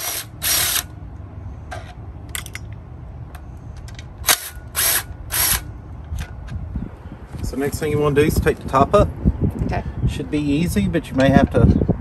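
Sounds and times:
impact driver rattling bursts: 0.0s - 0.9s, 4.2s - 5.7s.

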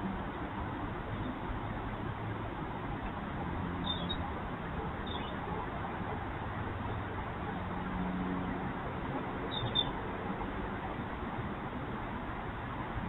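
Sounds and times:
high chirp: 3.8s - 4.2s.

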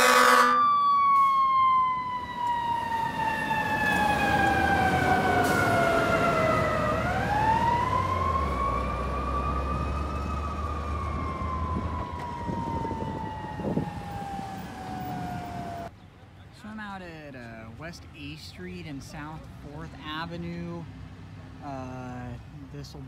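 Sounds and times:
fire engine siren wailing: 0.0s - 15.9s.

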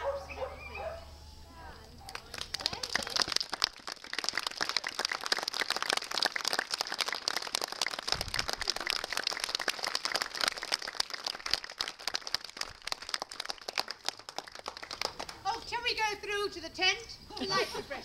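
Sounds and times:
crowd applauding: 2.1s - 15.5s.

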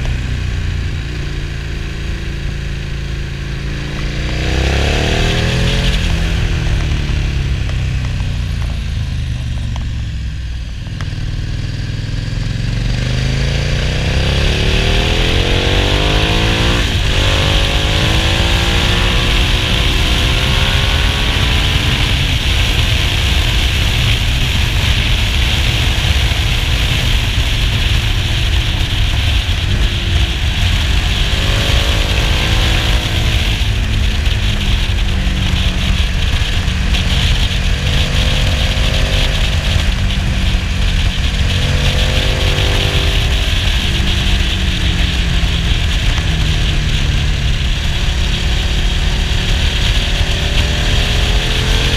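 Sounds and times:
motorcycle engine revving: 0.0s - 51.9s
wind rushing: 12.7s - 51.9s.

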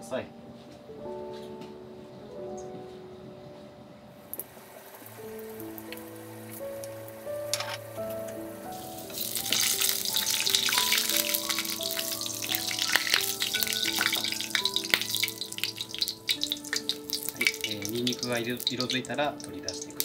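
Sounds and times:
light background music: 0.0s - 20.0s
garlic frying with small pops: 4.3s - 20.0s.

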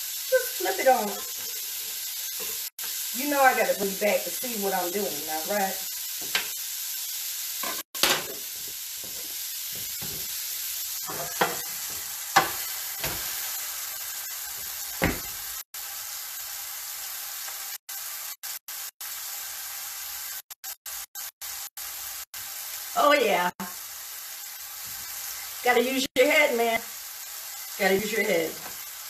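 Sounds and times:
shrimp sizzling in a skillet: 0.0s - 29.0s
metal pans and utensils knocking: 7.6s - 8.5s, 11.0s - 13.3s.

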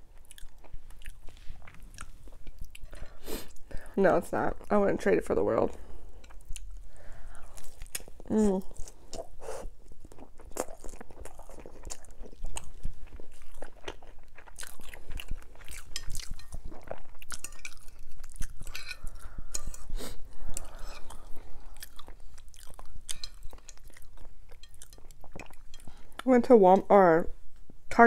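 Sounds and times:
crunchy chewing: 0.2s - 3.6s, 10.0s - 26.2s.

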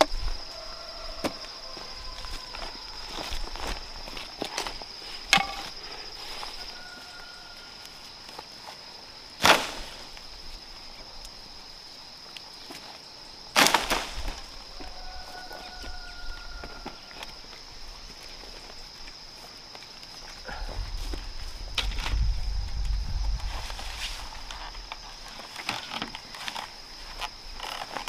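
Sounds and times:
high insect drone: 0.0s - 28.0s
chopping wood: 5.3s - 5.7s.

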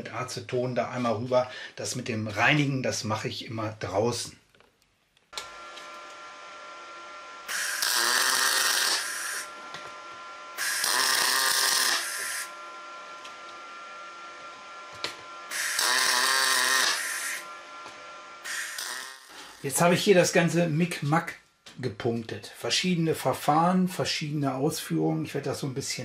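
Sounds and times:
welder humming: 5.3s - 20.6s
welding arc bursts: 7.4s - 9.6s, 10.5s - 12.6s, 15.5s - 17.6s, 18.4s - 19.8s.

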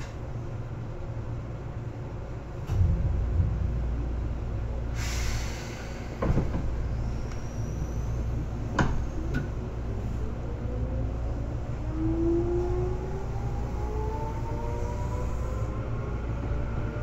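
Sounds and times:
train interior low rumble: 0.0s - 17.0s
faint rising whine: 2.7s - 5.0s
short hiss of air: 4.9s - 6.2s.

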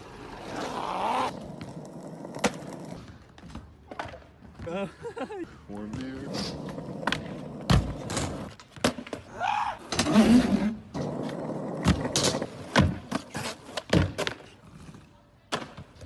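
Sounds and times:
skateboard wheels rolling on concrete: 0.0s - 16.0s
skateboard clacking and landing: 1.6s - 3.0s.

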